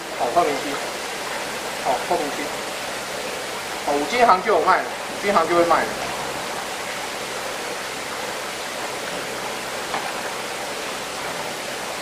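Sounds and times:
steady rushing noise: 1.8 - 12.0.

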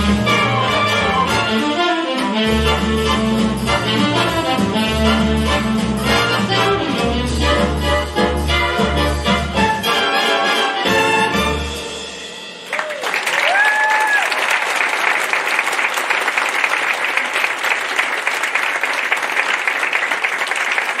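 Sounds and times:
audience applause: 12.6 - 21.0
person whooping: 12.8 - 14.4.

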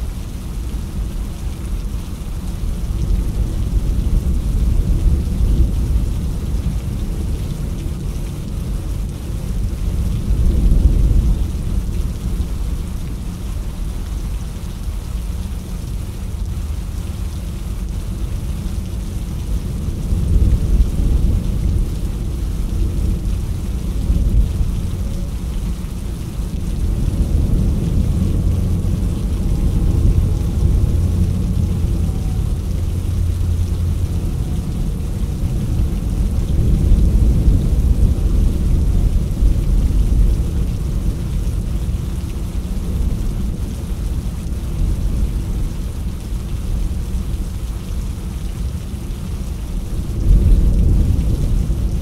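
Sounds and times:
rain patter: 0.0 - 52.0
thunder rumble: 9.9 - 13.0, 19.7 - 47.4, 49.8 - 52.0.

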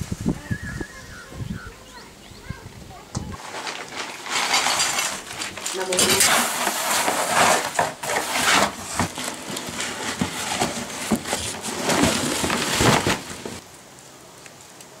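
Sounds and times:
cardboard boxes rustling: 3.4 - 13.6.

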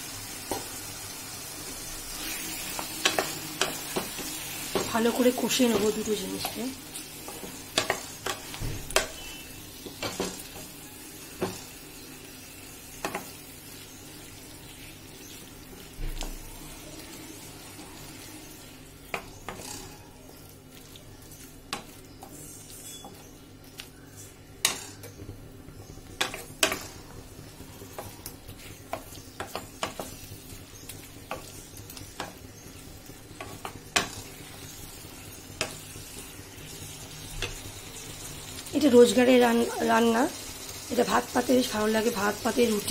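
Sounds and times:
low sizzle: 0.0 - 42.9
spatula scraping a pan: 2.1 - 4.7, 20.8 - 23.3.

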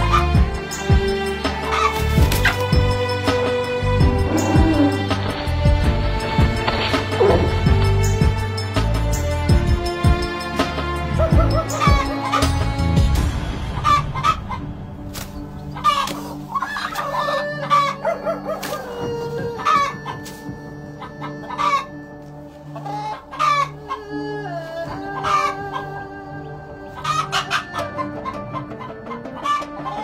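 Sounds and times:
background music with low pulse: 0.0 - 30.0
chickens clucking and squawking: 1.4 - 3.4, 11.1 - 12.8, 13.6 - 30.0.

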